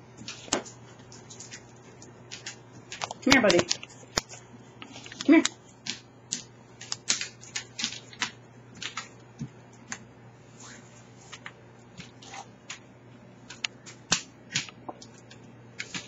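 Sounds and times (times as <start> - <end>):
dog claws clicking on vinyl floor: 0.2 - 10.0, 13.5 - 16.0.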